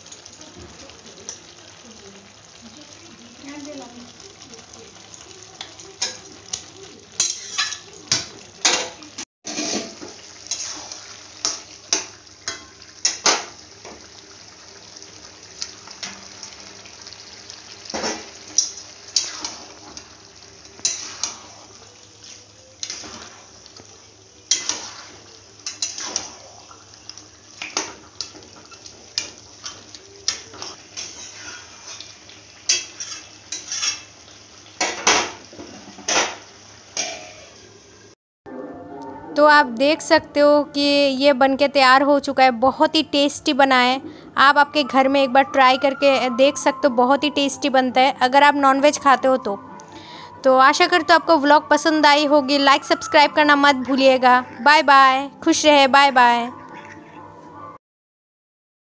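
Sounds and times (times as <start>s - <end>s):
spoon scraping a metal pan: 7.2s - 7.8s, 9.5s - 10.8s, 31.0s - 32.1s, 32.7s - 34.1s.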